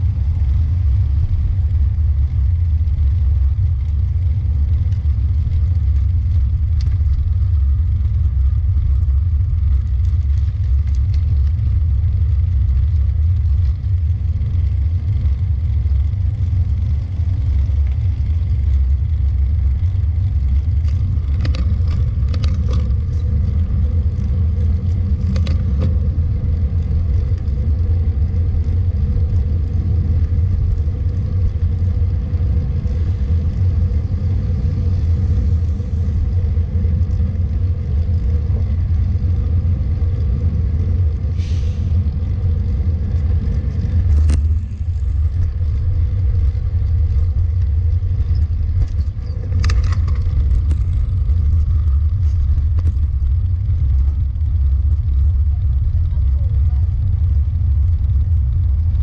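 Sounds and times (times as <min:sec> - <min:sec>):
tyre and road noise: 0:00.0 - 0:59.0
brief hisses: 0:41.3 - 0:42.0.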